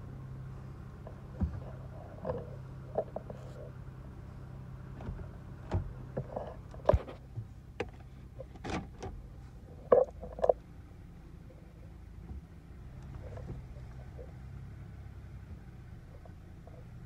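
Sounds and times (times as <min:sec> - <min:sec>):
car engine idling: 0:00.0 - 0:17.0
clicks and knocks in seat: 0:05.0 - 0:09.2.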